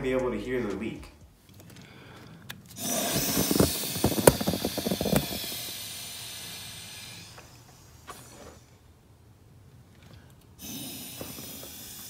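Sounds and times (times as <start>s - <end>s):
sharp crackles: 2.6s - 5.8s
air hissing from leak: 2.8s - 8.8s, 10.6s - 12.0s.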